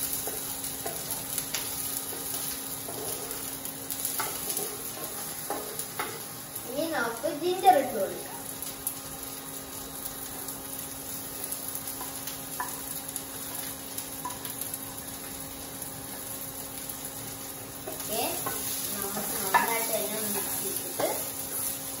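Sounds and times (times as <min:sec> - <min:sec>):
spatula stirring in pan: 0:00.0 - 0:06.4, 0:11.2 - 0:22.0
vegetables sizzling in oil: 0:00.0 - 0:22.0.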